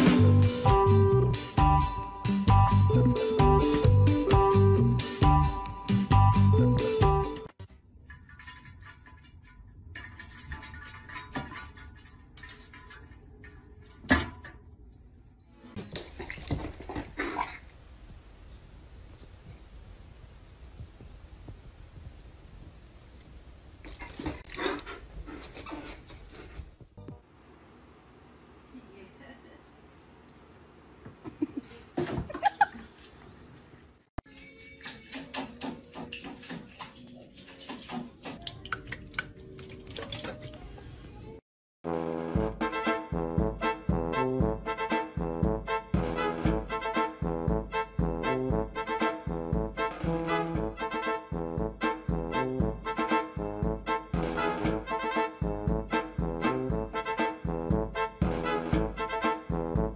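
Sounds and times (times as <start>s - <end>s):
paw splashing water in bowl: 15.8s - 17.8s, 35.0s - 40.6s.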